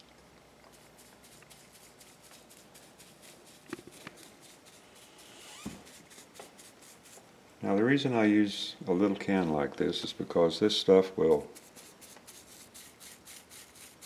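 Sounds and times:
brush strokes on wood: 0.7s - 7.3s.

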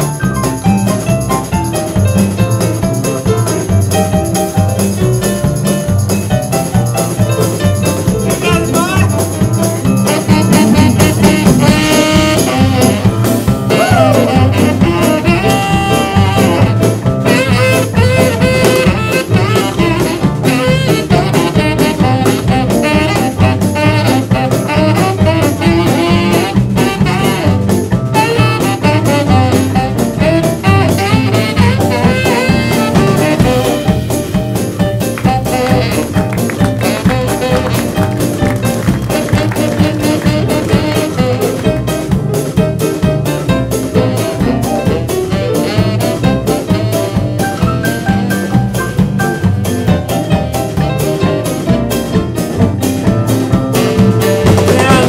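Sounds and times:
live jazz band playing swing: 0.0s - 55.0s
sliding brass notes: 8.3s - 43.0s, 43.6s - 49.8s.

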